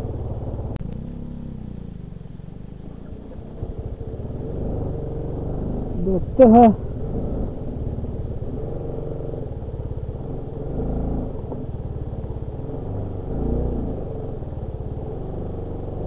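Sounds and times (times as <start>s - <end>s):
motorcycle engine idling: 0.0s - 16.0s.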